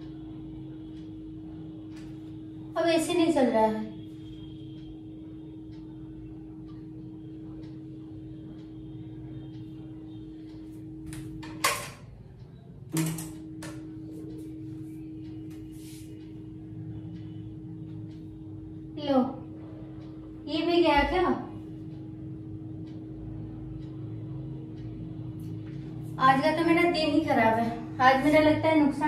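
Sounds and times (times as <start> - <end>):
electrical hum: 0.0 - 29.0.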